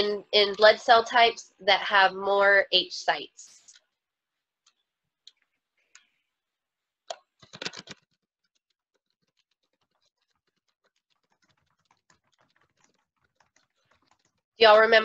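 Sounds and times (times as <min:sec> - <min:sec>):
keyboard typing: 0:07.1 - 0:14.4.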